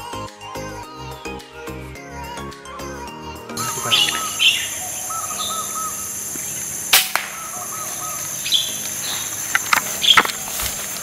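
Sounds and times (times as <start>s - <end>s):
birds chirping: 3.5s - 11.0s
high-pitched insect drone: 3.6s - 11.0s
air rifle shot: 6.9s - 7.6s.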